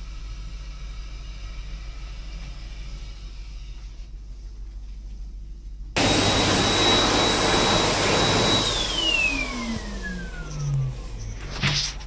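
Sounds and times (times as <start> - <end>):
electric hand dryer running: 6.0 - 11.2
motor whine spinning down: 6.0 - 11.6.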